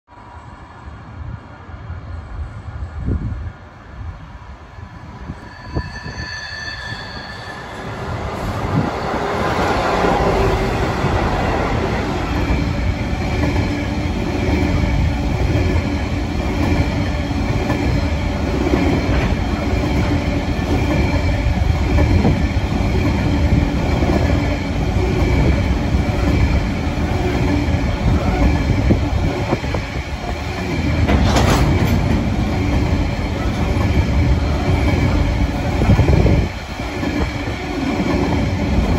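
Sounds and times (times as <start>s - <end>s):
diesel locomotive passing: 0.1s - 38.9s
high wheel squeal: 5.3s - 8.9s
train wagons rumbling: 6.8s - 38.9s.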